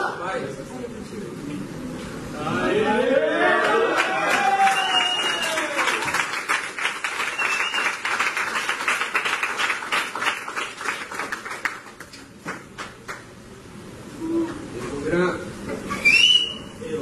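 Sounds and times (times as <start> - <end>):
crowd clapping: 3.6 - 13.3.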